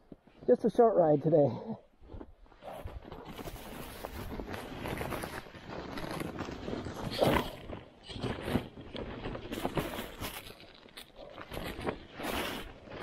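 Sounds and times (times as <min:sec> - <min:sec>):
canvas cover rustling: 0:02.6 - 0:13.0.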